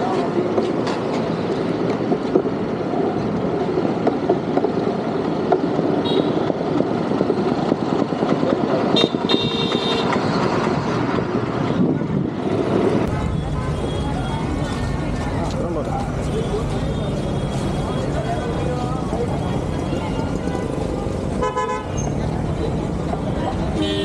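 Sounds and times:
road traffic roar: 0.0s - 24.0s
vehicle horn tooting: 9.0s - 10.1s, 21.4s - 22.0s, 23.8s - 24.0s.

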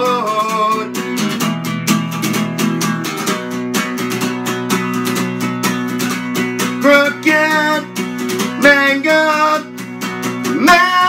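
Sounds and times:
person singing: 0.0s - 1.4s, 6.7s - 11.0s
acoustic guitar strumming: 0.0s - 11.0s.

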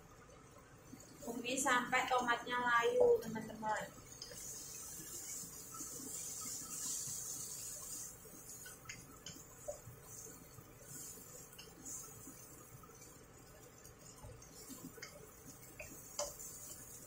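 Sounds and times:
vegetables sizzling in a frying pan: 1.0s - 17.0s
spatula tapping a pan: 15.0s - 16.8s.

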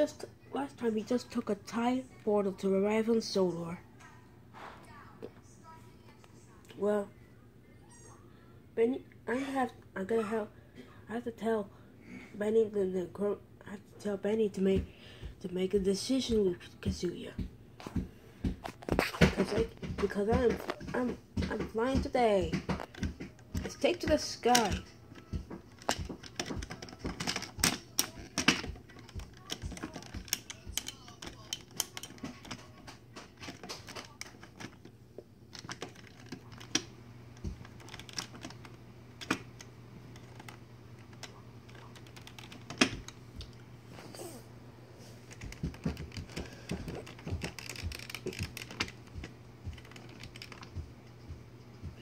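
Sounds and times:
plastic toy train clicking on track: 22.8s - 34.9s, 45.4s - 49.0s.

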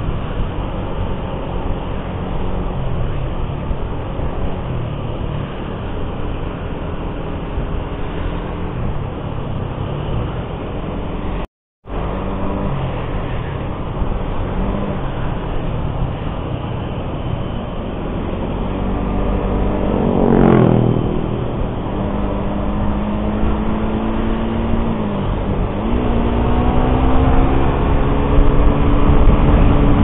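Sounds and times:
motorcycle engine running: 0.0s - 30.0s.

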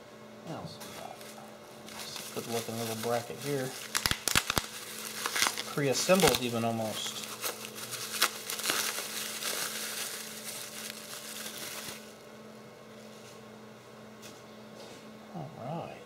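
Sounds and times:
bubble wrap crinkling: 0.8s - 12.3s.

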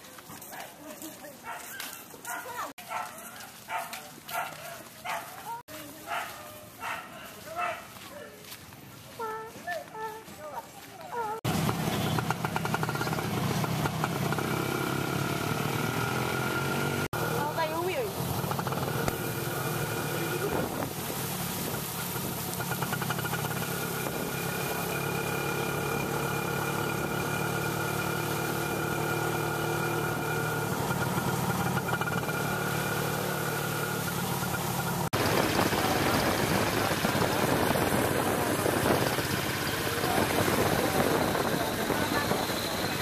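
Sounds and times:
motorcycle engine running: 11.2s - 43.0s.

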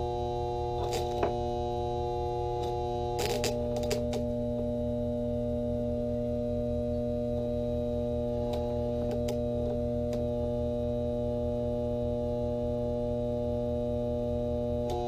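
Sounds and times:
sharp electrical crackles: 0.0s - 4.3s
transformer humming: 0.0s - 5.2s, 8.1s - 12.9s.

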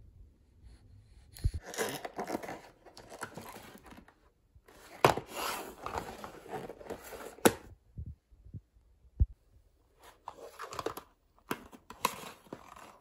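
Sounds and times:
cardboard box rustling and scraping: 4.7s - 7.4s.

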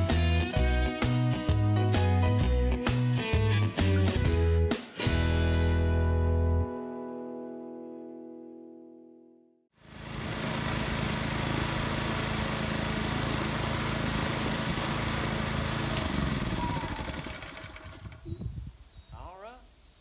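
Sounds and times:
small engine running: 9.8s - 18.4s.

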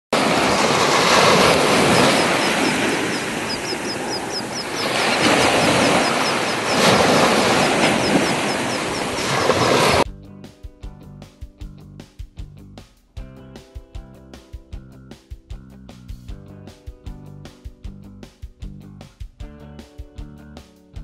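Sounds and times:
surf washing onto beach: 0.1s - 10.0s
faint high chirps: 1.6s - 9.5s.

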